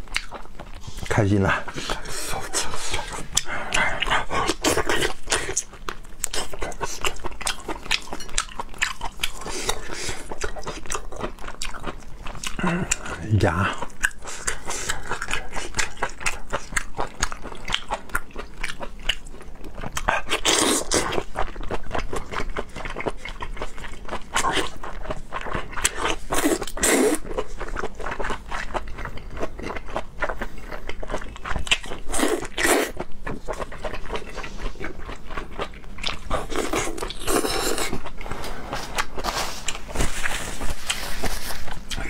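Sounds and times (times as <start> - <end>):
chewing and wet mouth noises: 0.0 - 42.0.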